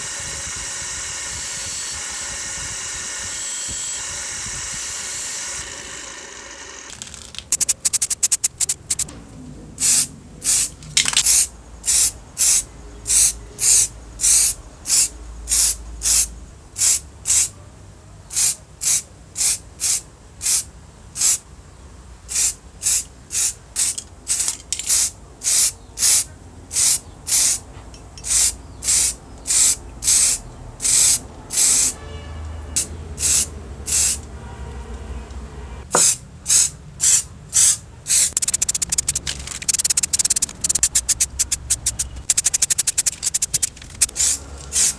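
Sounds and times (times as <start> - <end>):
spray paint hissing bursts: 7.4 - 9.1, 9.8 - 17.5, 18.3 - 21.4, 22.3 - 27.6, 28.2 - 32.0, 32.8 - 34.2, 36.0 - 44.9.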